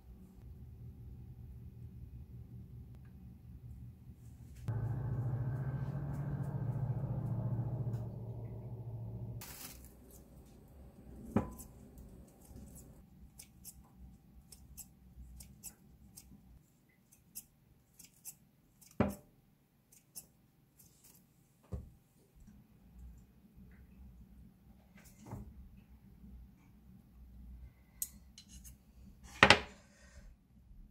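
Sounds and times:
steady low hum: 0.0s - 13.0s
scissors snipping bread: 12.4s - 13.8s.

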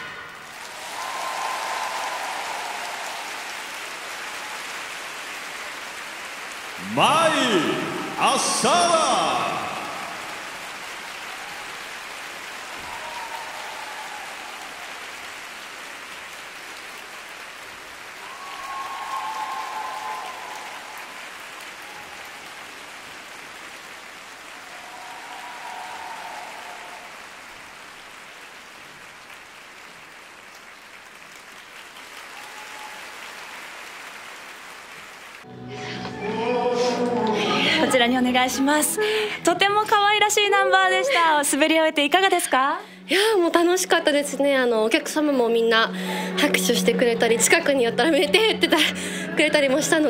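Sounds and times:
audience applauding: 0.0s - 41.7s.

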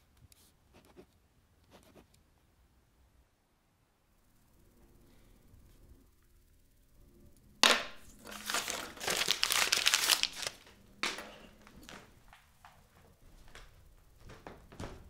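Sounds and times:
paper crumpling: 8.2s - 12.5s.

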